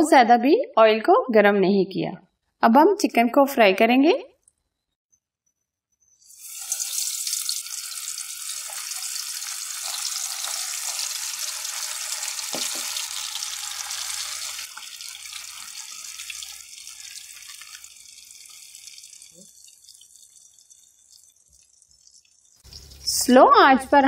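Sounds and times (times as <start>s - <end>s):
chicken sizzling in hot oil: 6.2s - 23.2s.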